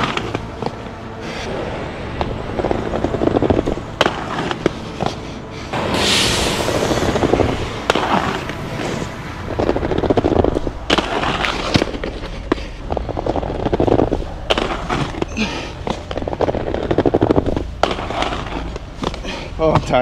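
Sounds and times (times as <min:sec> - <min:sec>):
skate wheels rolling on concrete: 0:00.0 - 0:20.0
skates scraping hiss: 0:03.2 - 0:10.2, 0:10.9 - 0:17.0, 0:17.8 - 0:19.6
skates clacking on ledge: 0:10.9 - 0:20.0.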